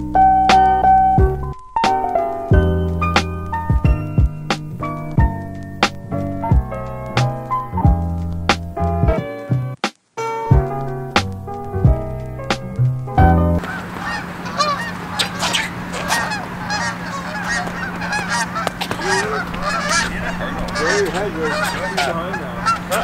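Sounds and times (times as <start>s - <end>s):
background music: 0.0s - 13.6s
geese honking: 13.5s - 23.0s
steady low hum: 13.6s - 23.0s.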